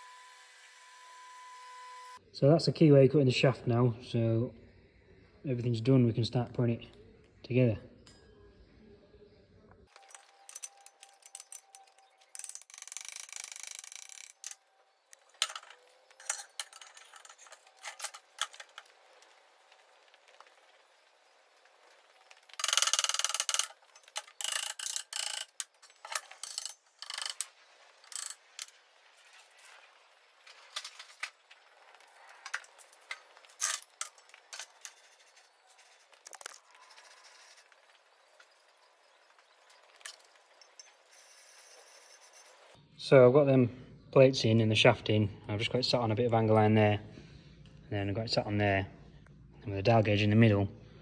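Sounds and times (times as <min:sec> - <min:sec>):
steel parts clanking: 0:09.9 - 0:19.2, 0:21.9 - 0:28.8, 0:30.5 - 0:42.8
metal grating: 0:09.9 - 0:20.4, 0:21.7 - 0:38.5.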